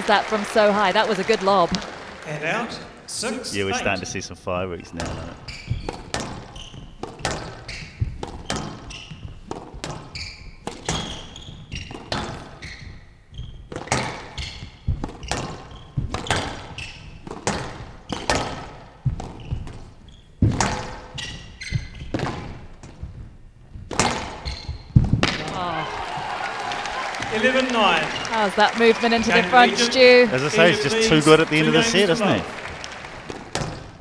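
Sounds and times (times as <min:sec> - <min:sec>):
squash ball hits echoing: 0:05.0 - 0:13.0, 0:13.6 - 0:23.2, 0:23.8 - 0:26.3, 0:33.2 - 0:34.0.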